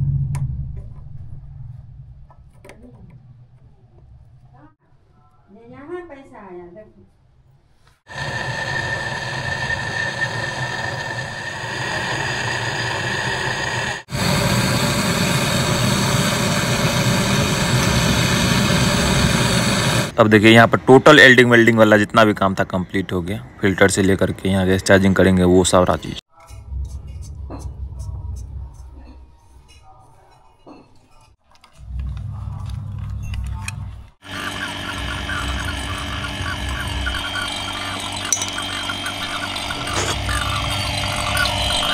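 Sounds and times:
torch flame hissing: 8.0s - 20.2s, 39.6s - 41.9s
tools clicking and clinking: 38.3s - 38.8s.

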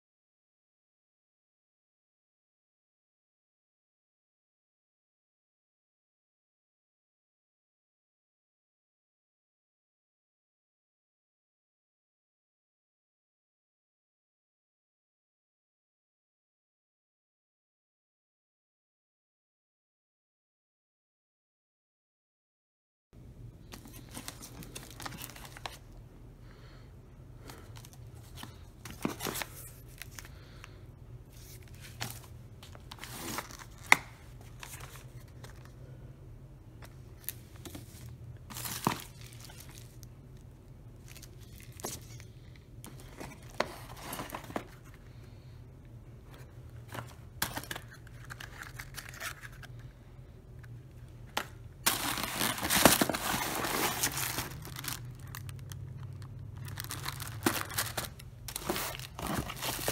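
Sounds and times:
low steady hum: 23.2s - 59.9s
cardboard rustling: 23.6s - 25.9s, 27.5s - 30.4s, 31.3s - 35.7s, 37.2s - 40.0s, 41.0s - 45.1s, 51.3s - 55.7s, 56.7s - 59.9s
plastic wrap crinkling: 51.8s - 59.9s.

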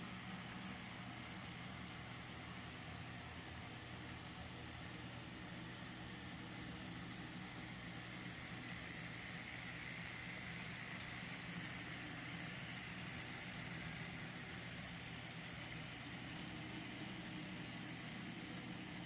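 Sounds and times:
model train motors whirring: 0.0s - 19.0s.

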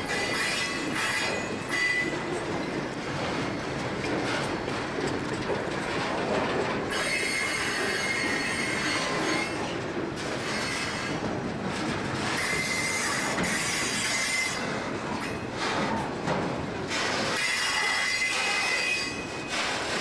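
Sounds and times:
train wheels rumbling and clacking: 0.0s - 20.0s
high-pitched wheel squeal: 6.9s - 9.6s, 17.4s - 19.6s.

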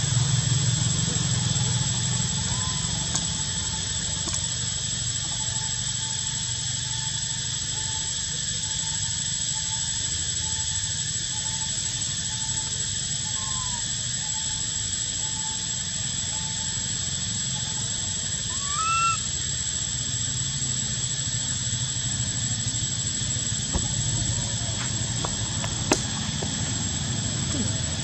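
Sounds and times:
constant high whine: 0.0s - 28.0s
outdoor hiss: 0.0s - 28.0s
faint short calls: 18.4s - 19.4s
baby monkey cooing: 18.4s - 19.5s.

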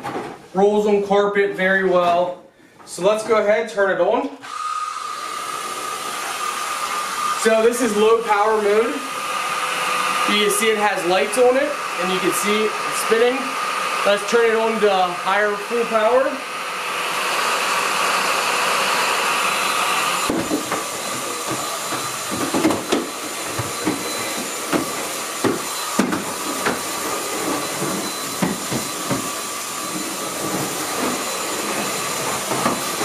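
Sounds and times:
stick vacuum motor running: 4.4s - 33.0s
vacuum knocking and bumping: 20.2s - 33.0s.

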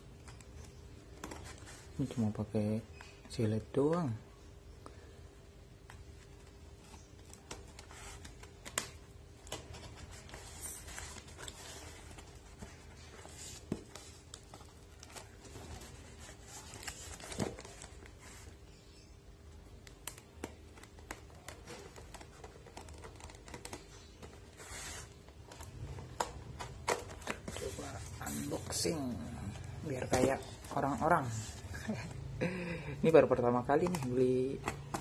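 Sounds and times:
tape crinkling: 6.1s - 18.6s, 19.7s - 32.1s.

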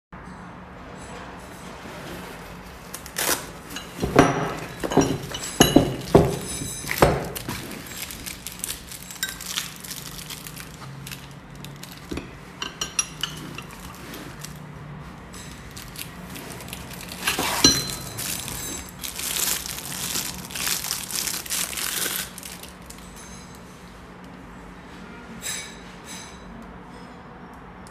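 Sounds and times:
rustling and clatter: 1.6s - 23.9s
metal wrenches clinking together: 3.7s - 9.8s, 11.9s - 14.0s, 17.0s - 19.0s.

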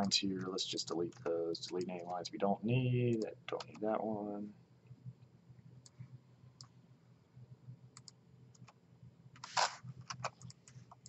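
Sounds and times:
faint low hum: 0.0s - 11.0s
computer mouse clicks: 7.9s - 8.8s, 9.4s - 11.0s.

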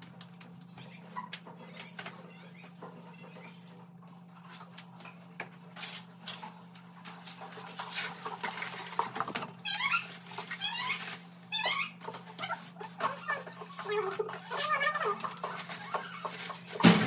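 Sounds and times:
debris clattering into plastic dustpan: 16.5s - 17.0s.

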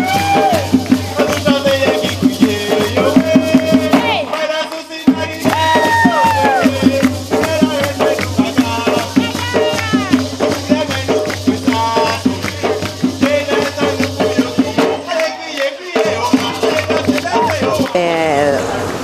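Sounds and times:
shaker rattling: 0.0s - 18.0s
hand drums beating fast rhythm: 0.0s - 18.5s
voices singing: 0.0s - 18.8s.

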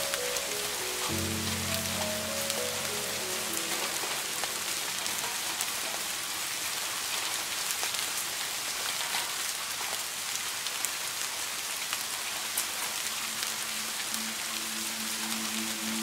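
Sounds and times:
steady rain: 0.0s - 16.0s.

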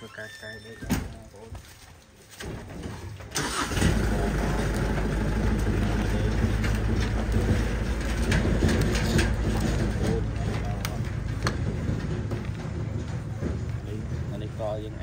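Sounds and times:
engine starting and idling: 3.3s - 14.3s.

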